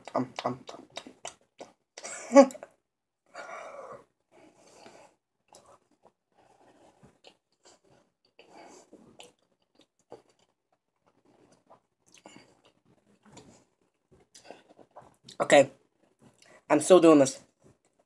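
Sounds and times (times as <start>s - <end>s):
chewing chocolate: 0.0s - 2.8s, 4.8s - 15.4s
mouth clicks and smacks: 0.0s - 2.8s, 4.8s - 15.4s
breathy sound: 3.3s - 5.2s.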